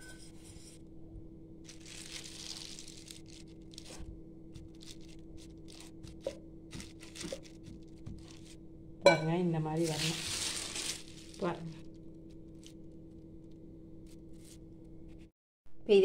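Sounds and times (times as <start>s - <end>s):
faint steady hum: 0.0s - 16.0s
plastic cover crinkling: 1.7s - 8.6s, 9.8s - 12.8s.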